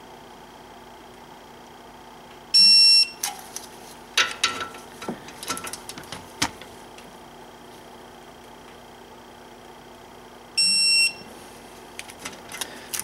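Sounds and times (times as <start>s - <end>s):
torque wrench electronic beep: 2.6s - 3.2s, 10.6s - 11.3s.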